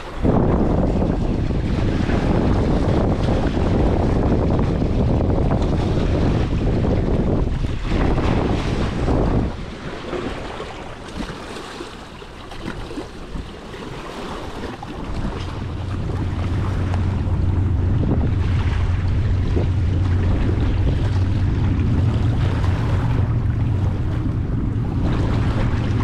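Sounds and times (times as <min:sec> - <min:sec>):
waves lapping against rocks: 0:00.0 - 0:26.0
wind buffeting the microphone: 0:00.0 - 0:26.0.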